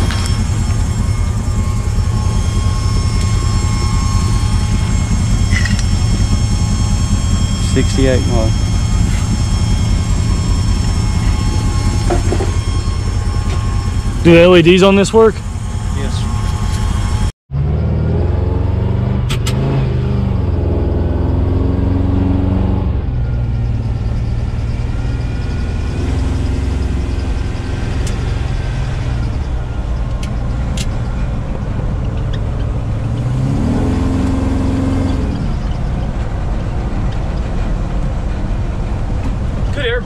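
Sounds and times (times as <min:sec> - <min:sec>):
road noise: 0:00.0 - 0:40.0
truck engine revving: 0:00.0 - 0:40.0.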